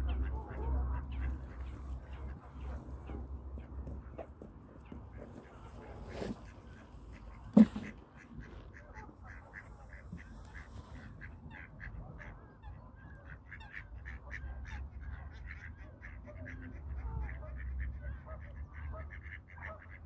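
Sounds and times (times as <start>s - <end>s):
duck quacking: 5.4s - 20.0s.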